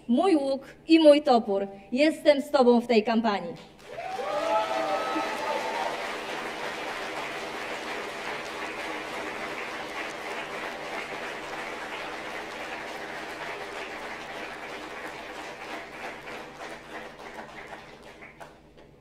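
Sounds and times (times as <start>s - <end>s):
audience applauding: 3.8s - 18.6s.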